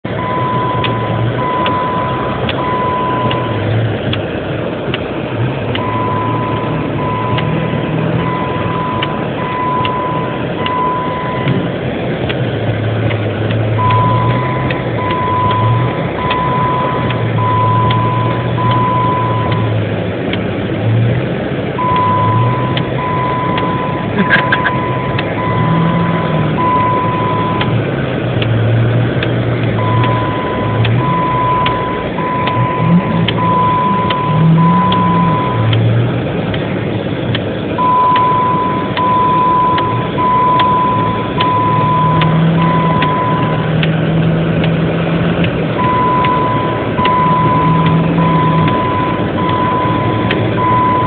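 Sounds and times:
diesel truck engine running: 0.0s - 51.0s
seatbelt warning chime: 0.2s - 3.6s, 5.8s - 11.6s, 13.8s - 19.7s, 21.8s - 27.8s, 29.8s - 35.8s, 37.8s - 43.6s, 45.8s - 51.0s.

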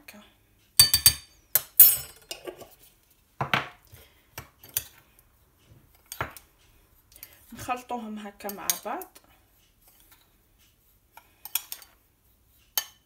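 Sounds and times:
metal spoon clinking on ceramic bowl: 0.8s - 2.5s.

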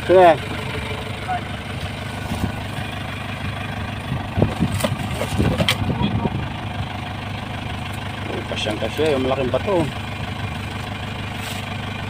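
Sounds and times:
truck engine idling: 0.0s - 12.0s
knocks and scrapes of stones: 4.4s - 6.0s.

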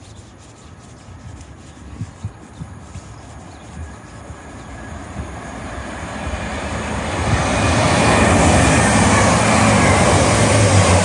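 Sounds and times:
diesel train approaching: 3.8s - 11.0s.

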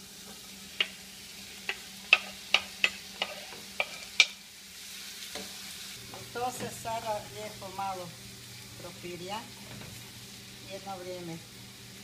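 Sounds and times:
oil sizzling: 0.0s - 12.0s
knife scraping cutting board: 2.2s - 4.2s.

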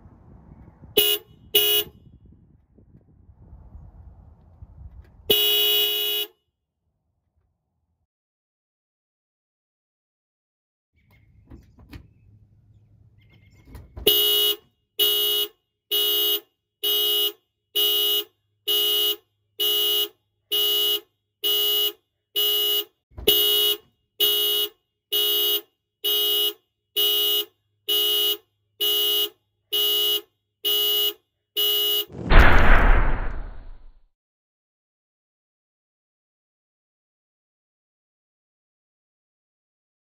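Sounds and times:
car alarm horn honking: 14.1s - 32.1s.

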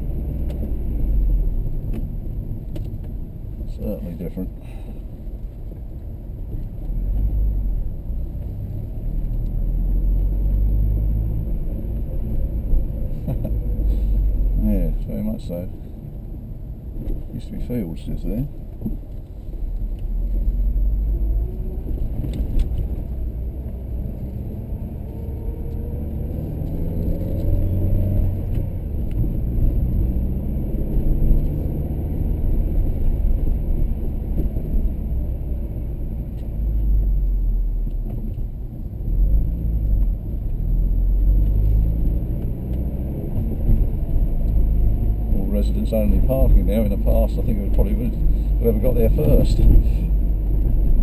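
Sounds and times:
road rumble inside car: 0.0s - 51.0s
car engine accelerating: 6.5s - 15.7s, 19.4s - 51.0s.

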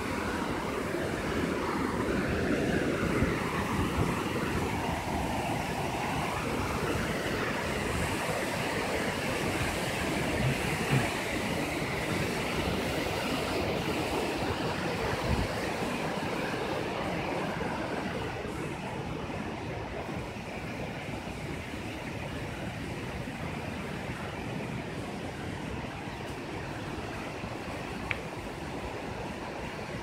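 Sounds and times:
waterfall rushing over rock: 0.0s - 30.0s.

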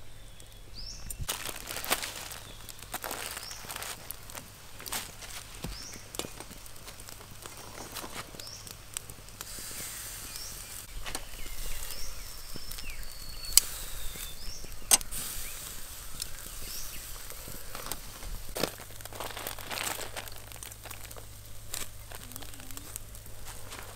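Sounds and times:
steady outdoor hiss: 0.0s - 23.9s
short bird chirps: 10.2s - 17.1s
sharp clicks or knocks: 14.9s - 15.1s.

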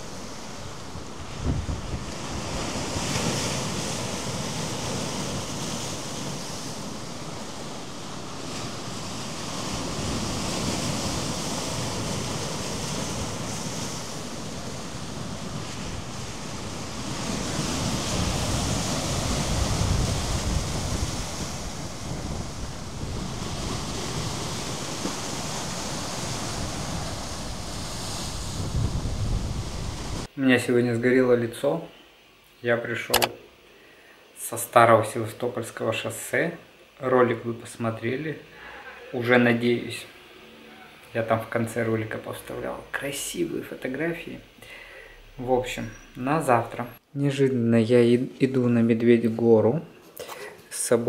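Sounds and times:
wind buffeting microphone: 0.0s - 3.3s, 12.0s - 30.3s
surf crashing on rocks: 0.0s - 30.3s.

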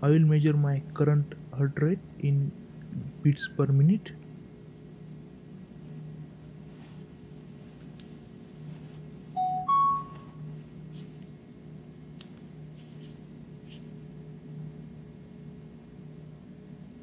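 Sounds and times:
steady low hum: 0.0s - 17.0s
rising two-note beep: 9.4s - 10.4s.

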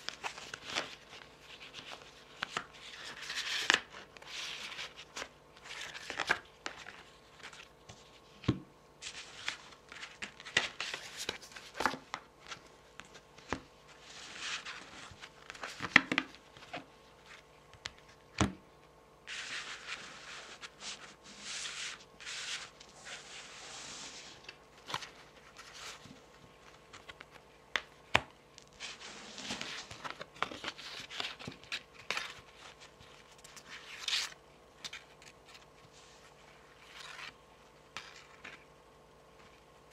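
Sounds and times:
cards rubbing and sliding: 9.0s - 17.4s, 19.3s - 27.4s, 28.6s - 38.7s.

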